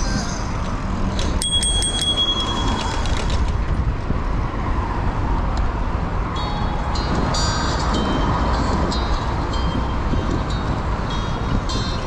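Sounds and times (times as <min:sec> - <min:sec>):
wind rumble on microphone: 0:00.0 - 0:12.0
bicycle bell dings: 0:01.4 - 0:03.2.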